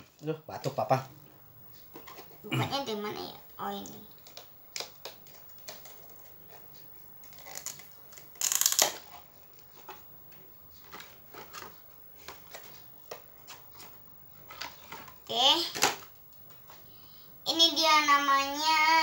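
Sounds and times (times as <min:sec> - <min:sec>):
packaging tearing rip: 0:07.3 - 0:09.2.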